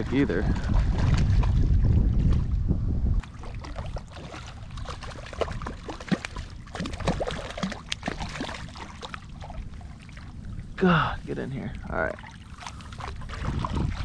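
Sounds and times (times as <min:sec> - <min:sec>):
wind buffeting microphone: 0:00.0 - 0:14.0
fish splashing in water: 0:03.2 - 0:10.4, 0:12.2 - 0:14.0.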